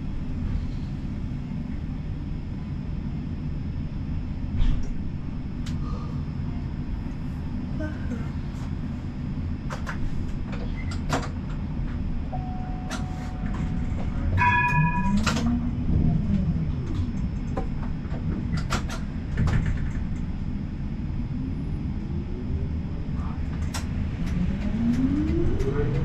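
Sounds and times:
tram wheels rumbling on rails: 0.0s - 26.0s
short ringing chime: 14.4s - 15.4s.

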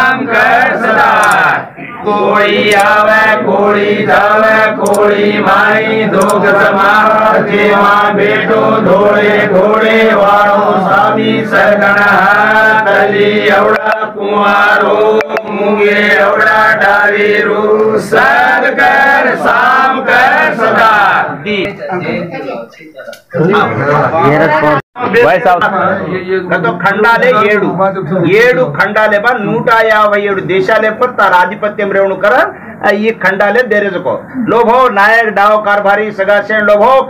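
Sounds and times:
men chanting: 0.0s - 21.5s.

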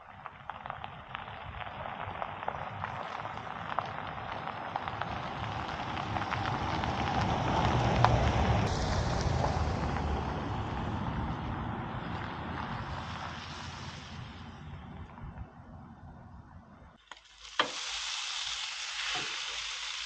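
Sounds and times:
tyres crunching on gravel: 0.0s - 15.6s
truck engine rumble: 0.0s - 17.1s.

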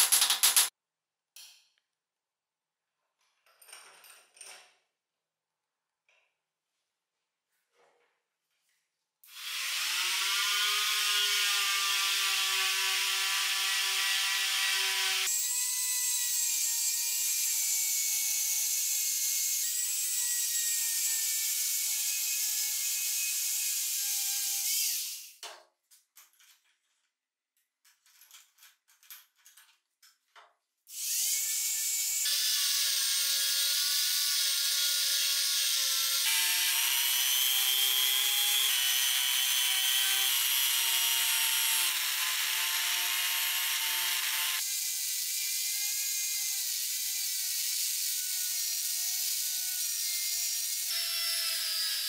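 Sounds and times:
faint clicks and scrapes: 25.8s - 30.7s
rotary tool grinding whine: 30.9s - 52.0s.

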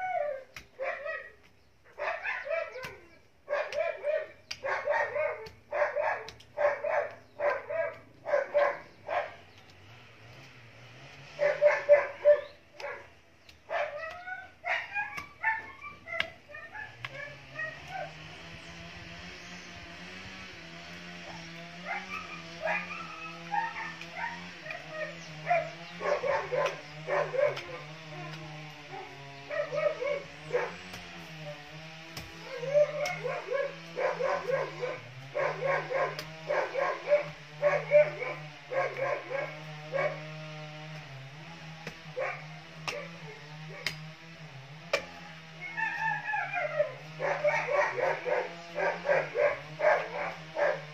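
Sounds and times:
dog barking and yelping: 0.0s - 9.4s, 11.4s - 18.2s, 21.2s - 31.7s, 32.4s - 40.3s, 42.1s - 44.0s, 45.1s - 50.9s
sharp clicks: 6.2s - 7.2s.

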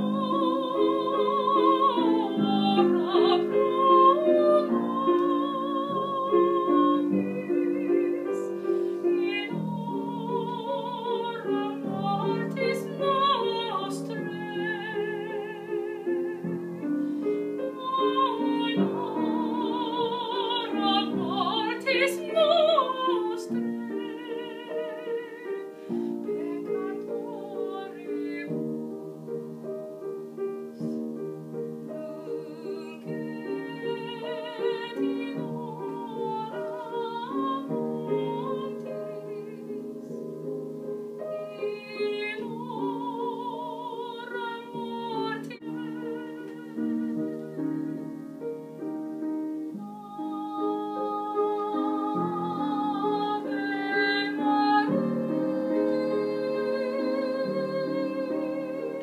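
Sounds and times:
woman singing operatically: 0.0s - 28.7s, 32.0s - 40.2s, 41.4s - 48.0s, 49.8s - 59.0s
piano chords: 0.0s - 59.0s.

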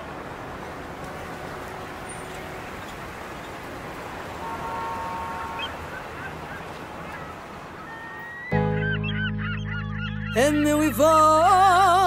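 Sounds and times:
traffic rumble: 0.0s - 12.0s
honking tone: 4.3s - 11.1s.

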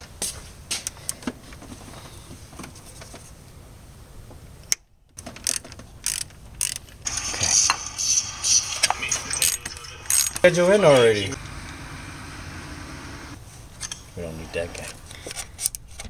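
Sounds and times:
ratchet wrench clicking: 5.4s - 6.8s.

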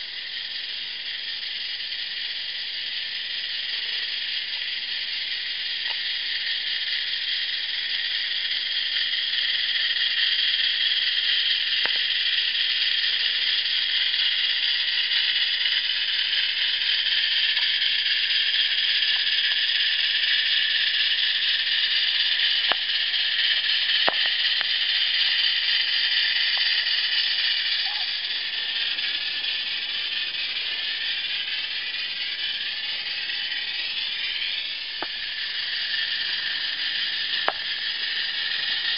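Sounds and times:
steam locomotive chuffing: 0.0s - 38.9s
sharp clicks: 5.8s - 6.1s, 21.7s - 38.9s.

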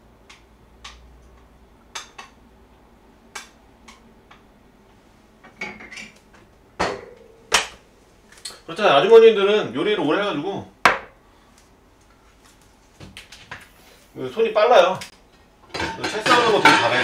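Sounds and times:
kitchen utensils and dishes clinking: 15.6s - 17.0s.

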